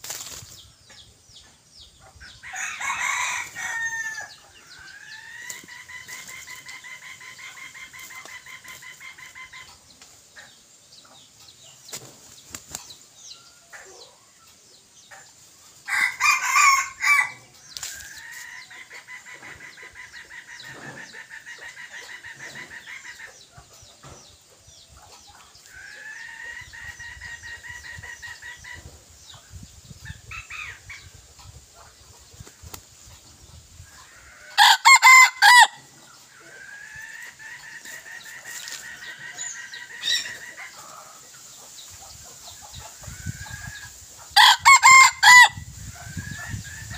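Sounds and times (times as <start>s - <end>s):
wing-flaps: 0.0s - 0.6s
rooster crowing: 2.5s - 4.3s, 15.9s - 17.4s, 34.4s - 35.8s, 44.4s - 45.6s.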